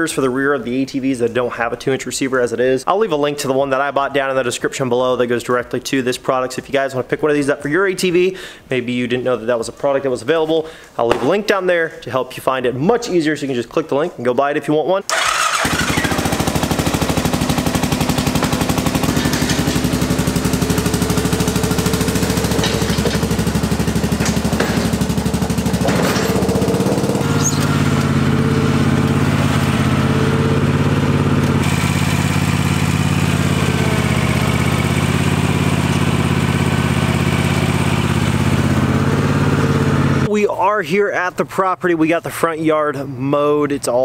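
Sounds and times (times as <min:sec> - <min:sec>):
quad bike engine running: 0:15.1 - 0:40.3
riding mower engine mowing: 0:15.1 - 0:40.3.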